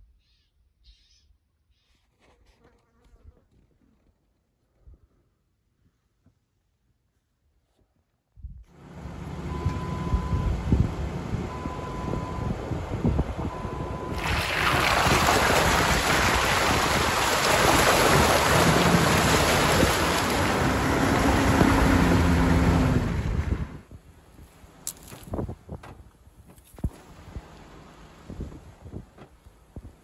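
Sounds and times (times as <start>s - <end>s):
short beeps: 9.5s - 10.6s
wind buffeting camera: 9.5s - 27.6s, 28.2s - 30.0s.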